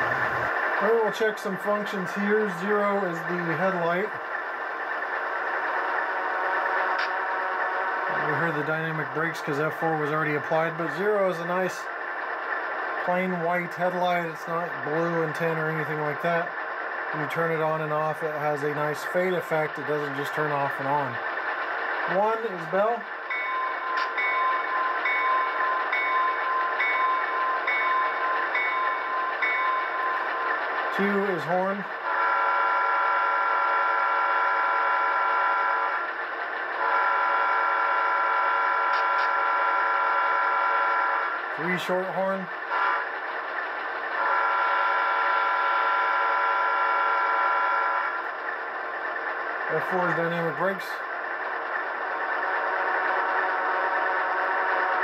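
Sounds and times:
model engine noise: 0:00.0 - 0:55.0
model locomotive bell ringing: 0:23.3 - 0:30.3
model locomotive horn chord: 0:32.1 - 0:35.9, 0:36.8 - 0:38.8, 0:42.7 - 0:43.0, 0:44.2 - 0:48.1.

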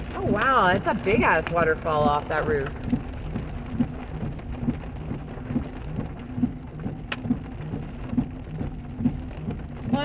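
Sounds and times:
heavy rain and hail on car roof: 0:00.0 - 0:10.0
soft low thump: 0:02.0 - 0:10.0.

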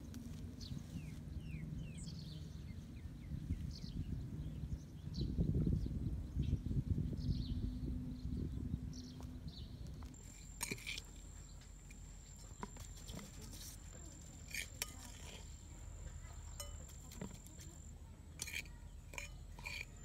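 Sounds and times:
spoon clinking and scraping dishes: 0:10.2 - 0:15.6, 0:16.5 - 0:20.0.

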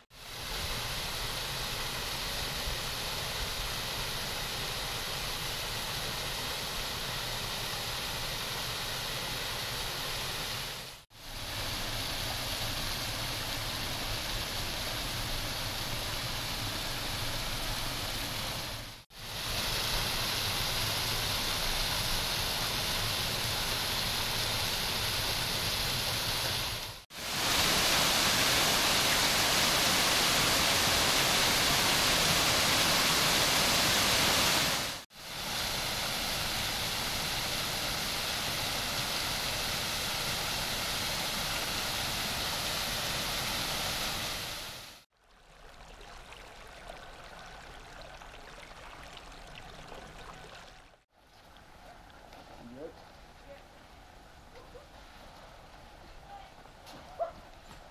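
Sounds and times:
waterfall rushing: 0:00.3 - 0:45.0.

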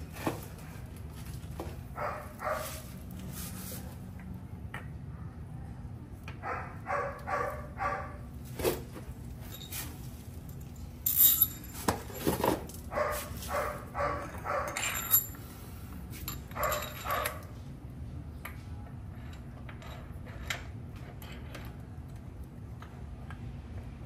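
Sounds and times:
dog barking: 0:02.0 - 0:02.8, 0:06.4 - 0:08.3, 0:12.9 - 0:14.8, 0:16.6 - 0:17.4.

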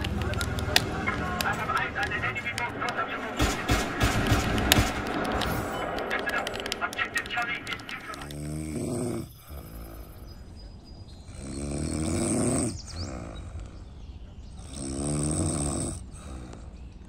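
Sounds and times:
person snoring: 0:08.2 - 0:10.3, 0:11.3 - 0:13.8, 0:14.6 - 0:16.8.

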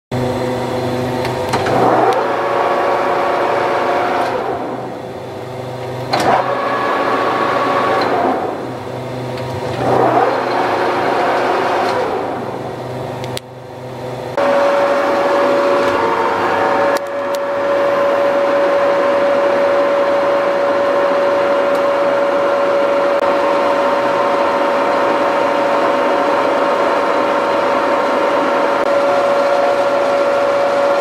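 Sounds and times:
lathe gear whine: 0:00.2 - 0:31.0.

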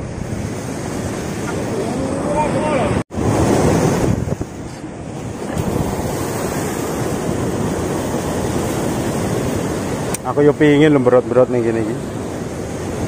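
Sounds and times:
wind buffeting microphone: 0:00.0 - 0:13.0
surf breaking against rocks: 0:00.8 - 0:13.0.

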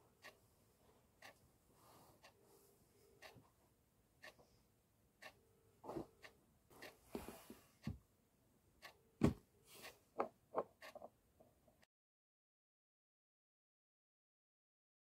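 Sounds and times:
soft knocks and taps: 0:09.2 - 0:09.4.

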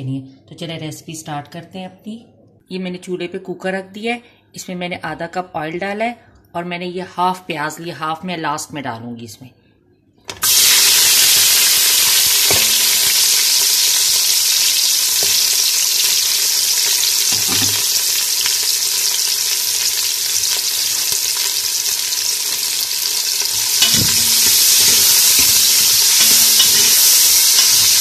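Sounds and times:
onions sizzling in hot oil: 0:10.4 - 0:28.0.

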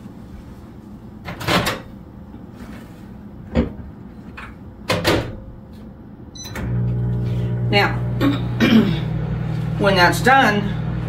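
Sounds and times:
microwave door opening and shutting: 0:04.8 - 0:05.4, 0:06.4 - 0:07.1.

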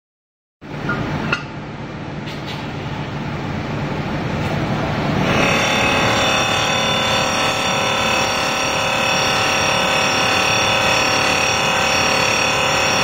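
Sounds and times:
whine of steady tones: 0:03.4 - 0:13.0
polishing machine mechanical din: 0:04.1 - 0:13.0.

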